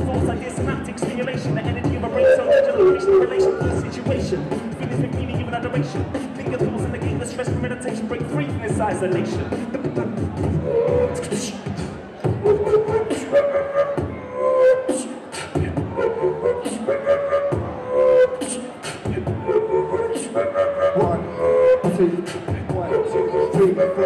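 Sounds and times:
beatboxing: 0.0s - 24.0s
hummed pitched line: 2.0s - 4.2s.

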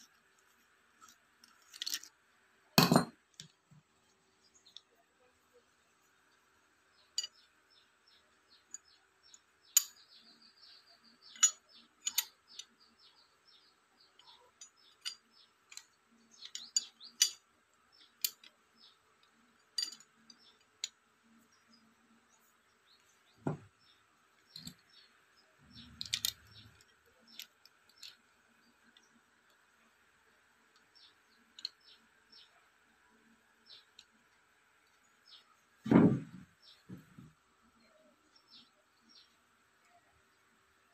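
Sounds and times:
light clicks and metallic taps: 7.2s - 7.5s, 11.2s - 12.8s
dull thump: 35.9s - 37.3s.

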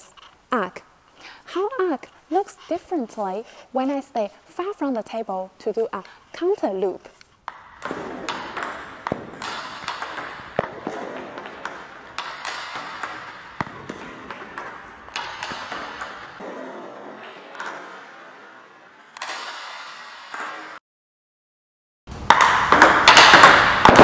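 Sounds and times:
ping pong ball clicks: 7.5s - 10.7s.

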